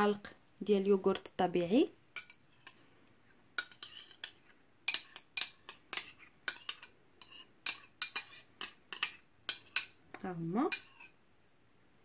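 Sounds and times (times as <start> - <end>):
metal spoon clinking on bowls: 2.2 - 2.8, 3.6 - 11.2.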